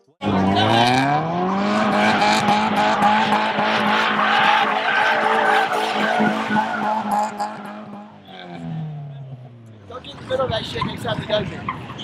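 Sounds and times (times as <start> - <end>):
car engine revving: 0.2 - 10.6
tyres squealing: 3.8 - 8.6.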